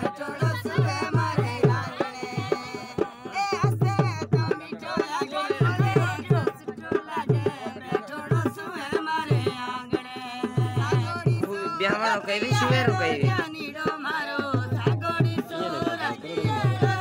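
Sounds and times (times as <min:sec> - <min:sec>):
drum beating: 0:00.0 - 0:17.0
women singing together: 0:00.0 - 0:17.0.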